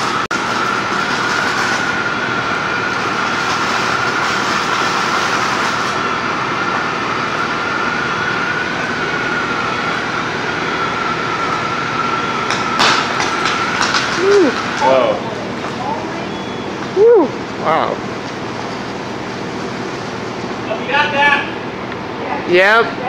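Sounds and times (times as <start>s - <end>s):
loud rushing of burning metal: 0.0s - 22.2s
high whistle-like tone: 16.1s - 17.4s.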